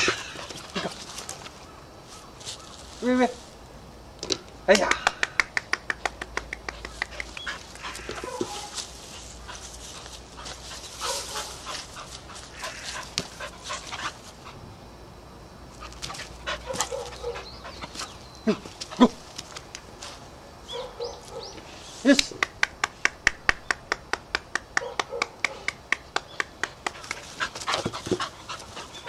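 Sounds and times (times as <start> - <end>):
puppy panting: 6.5 - 14.6, 15.8 - 19.2, 26.7 - 29.0.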